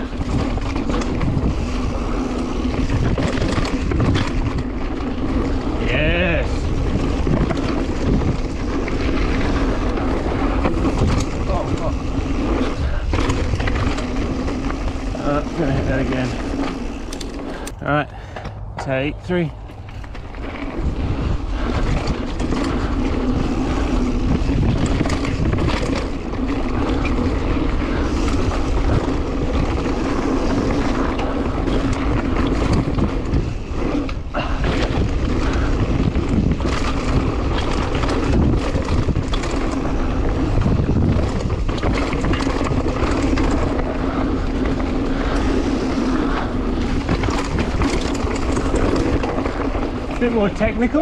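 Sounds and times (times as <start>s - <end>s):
bike knocking and rattling: 0.0s - 51.0s
rumble of bike tyres: 0.0s - 51.0s
wind buffeting microphone: 0.0s - 51.0s.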